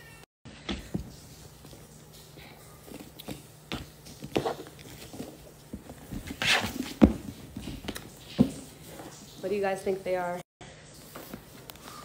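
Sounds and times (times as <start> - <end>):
scraping rustle of cardboard: 4.3 - 7.8.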